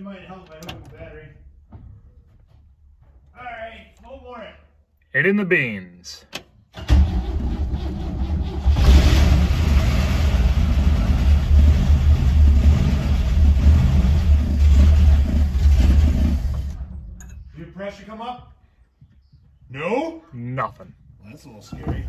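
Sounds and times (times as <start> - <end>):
engine cranking and revving: 6.7 - 17.2.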